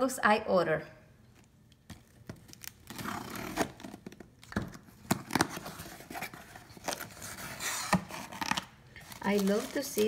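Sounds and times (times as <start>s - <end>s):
cardboard scraping and rustling: 5.2s - 10.0s.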